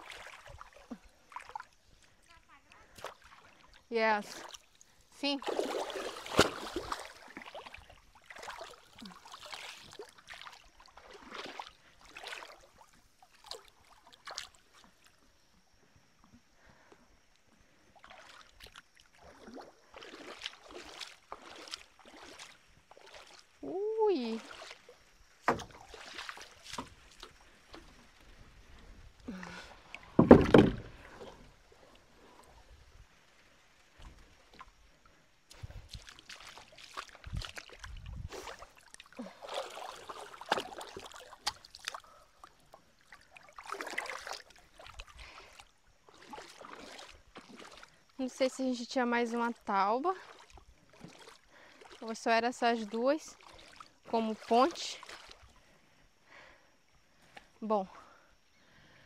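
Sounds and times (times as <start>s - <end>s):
water sloshing and splashing: 0.0s - 16.9s, 17.6s - 58.3s
heavy thump and splash: 5.4s - 12.6s, 24.4s - 28.0s, 29.5s - 31.4s, 35.5s - 42.0s, 54.4s - 55.4s.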